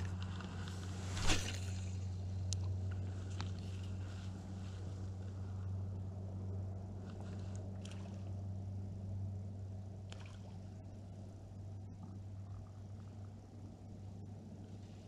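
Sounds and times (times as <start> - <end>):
steady low hum: 0.0 - 15.0
faint water sounds: 6.9 - 15.0.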